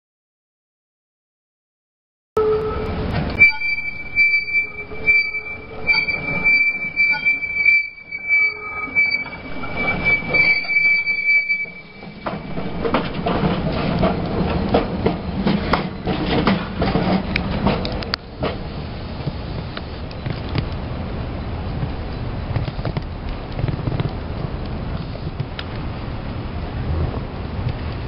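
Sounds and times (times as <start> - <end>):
tram wheels squealing: 2.4 - 19.1
tram rumbling past: 2.4 - 28.0.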